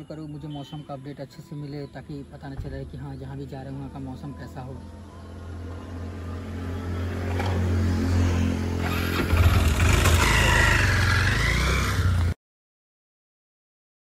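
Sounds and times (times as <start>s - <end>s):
scooter engine revving: 6.0s - 12.4s.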